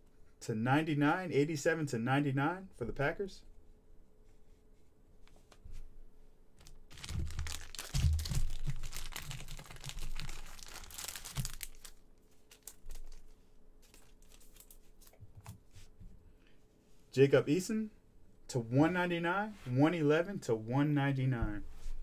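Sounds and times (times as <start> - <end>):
thin plastic crinkling: 6.6 - 15.6.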